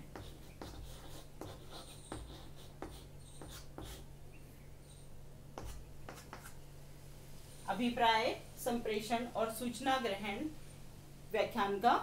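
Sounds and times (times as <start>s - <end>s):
chalk writing on chalkboard: 0.0s - 4.1s, 5.6s - 6.6s.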